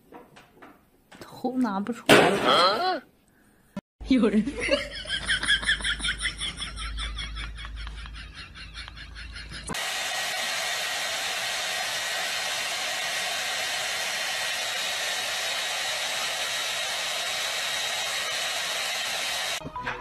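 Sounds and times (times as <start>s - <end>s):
hair dryer blowing: 9.6s - 19.6s.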